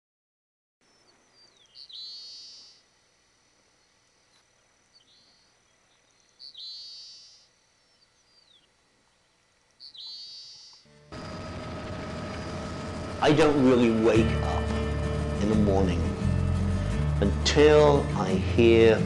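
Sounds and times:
sparrow singing buzzy trill: 0:00.8 - 0:02.9, 0:04.8 - 0:16.9.

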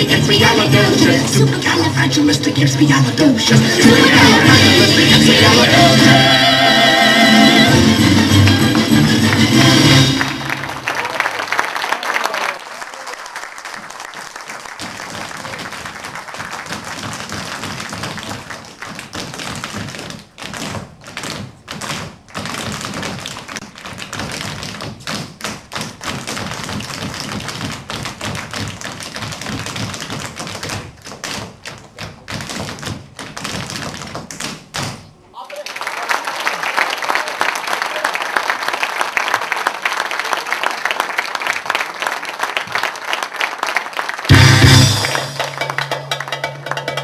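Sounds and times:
tap shoes on wooden stage: 0:13.2 - 0:35.2, 0:38.4 - 0:44.4.

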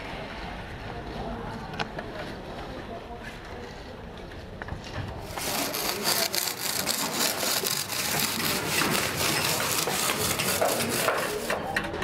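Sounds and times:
wood scraping over plaster: 0:05.2 - 0:11.7.

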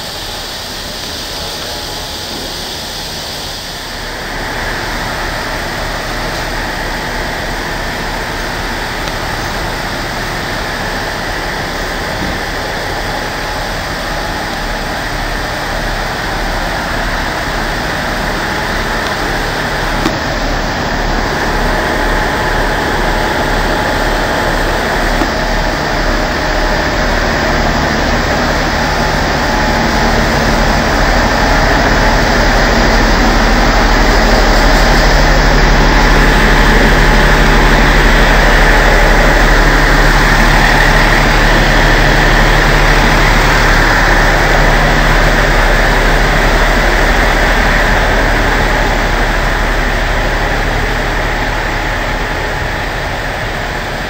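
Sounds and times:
diesel railcar engine running: 0:00.0 - 0:54.0.

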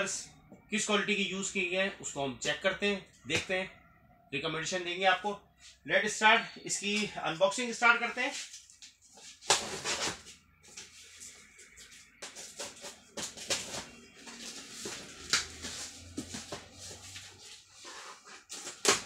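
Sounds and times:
tape tearing: 0:08.4 - 0:10.4, 0:12.2 - 0:19.0
cardboard carton rustling: 0:09.0 - 0:19.0.

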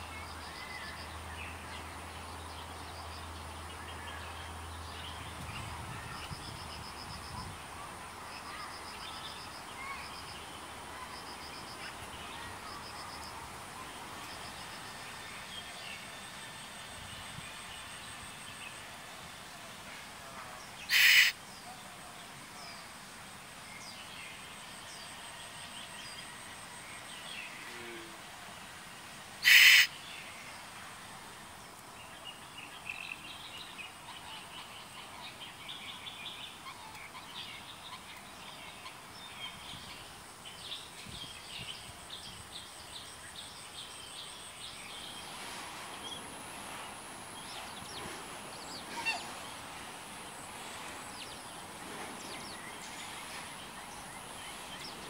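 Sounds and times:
bird harsh screeching calls: 0:20.9 - 0:21.4, 0:29.4 - 0:29.9.

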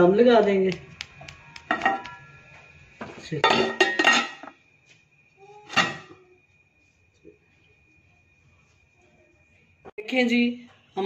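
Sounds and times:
metal pot lid clanking: 0:03.4 - 0:04.5.

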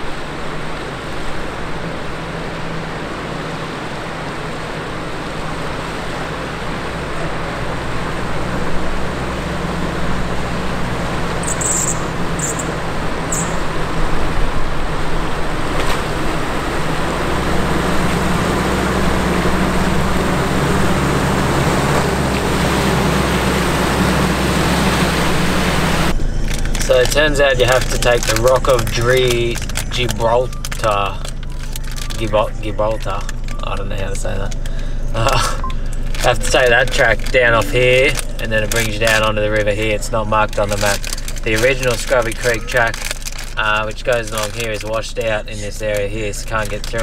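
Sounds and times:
river water rushing: 0:00.0 - 0:27.0
vehicle engine running: 0:00.0 - 0:47.0.

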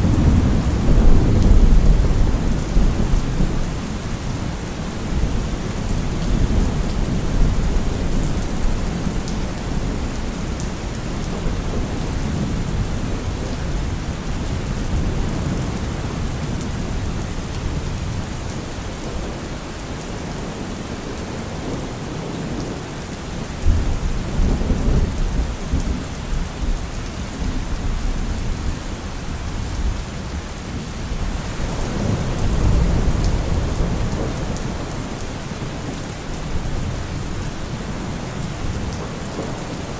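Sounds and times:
thunder rumbling: 0:00.0 - 0:04.1
steady rain: 0:00.0 - 0:39.9.

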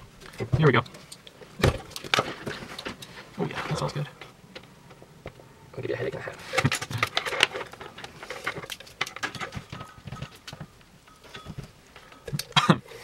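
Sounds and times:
metal foil and plastic film crinkling: 0:06.4 - 0:12.6.

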